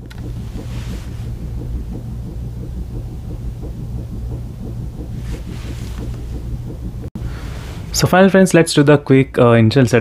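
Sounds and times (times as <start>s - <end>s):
low rumble: 0.0s - 8.3s.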